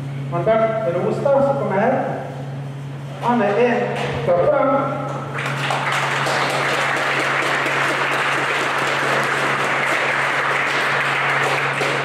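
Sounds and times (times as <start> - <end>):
crowd applauding: 5.3 - 12.0.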